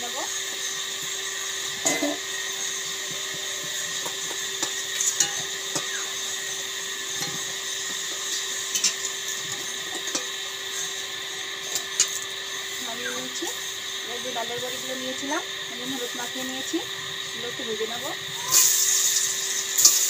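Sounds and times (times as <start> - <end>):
potatoes sizzling in hot oil: 0.0 - 20.0
metal spatula clinking on pan: 4.6 - 5.9.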